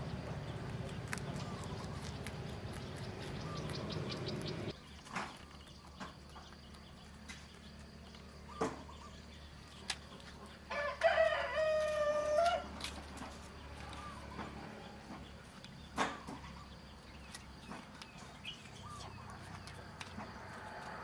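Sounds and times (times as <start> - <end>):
rabbit chewing: 0.0 - 21.0
rooster crowing: 10.7 - 12.8.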